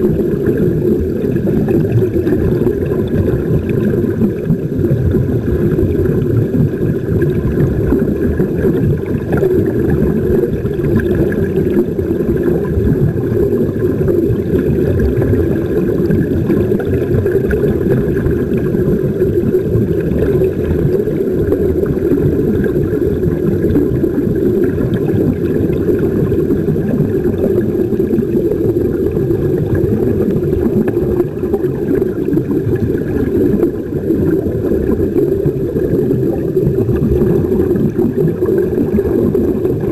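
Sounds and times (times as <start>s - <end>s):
air bubbling: 0.0s - 39.9s
muffled underwater rumble: 0.0s - 39.9s.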